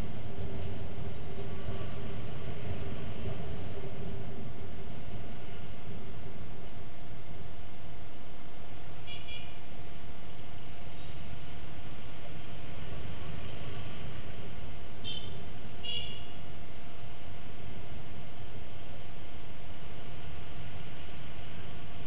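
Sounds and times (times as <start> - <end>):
scooter traffic rumble: 0.0 - 22.0
motorbike horn beeps: 9.0 - 9.6, 15.0 - 16.4.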